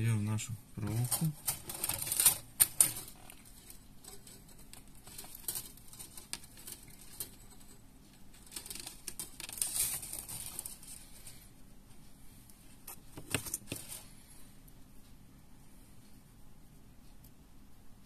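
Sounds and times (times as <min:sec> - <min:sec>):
thin wire clicking and rustling: 0:01.0 - 0:11.4.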